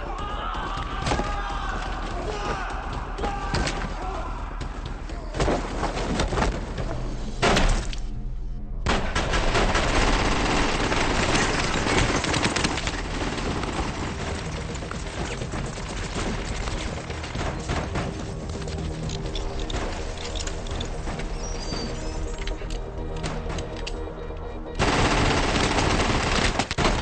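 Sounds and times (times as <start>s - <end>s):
action film music: 0.0s - 27.0s
rapid gunfire: 8.9s - 18.2s, 24.8s - 27.0s.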